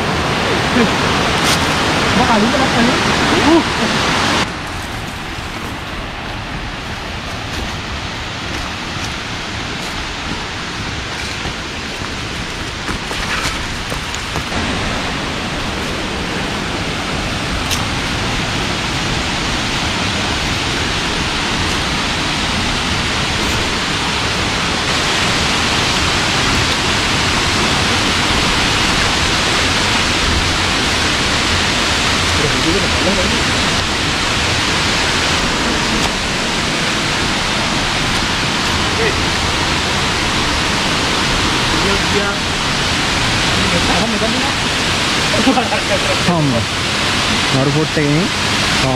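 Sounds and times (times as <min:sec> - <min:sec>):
waterfall rushing: 0:00.0 - 0:48.9.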